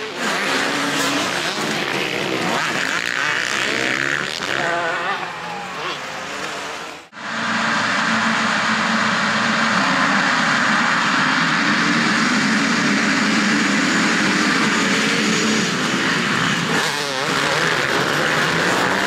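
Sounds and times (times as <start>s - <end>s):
many motorcycle engines droning: 0.0s - 19.0s.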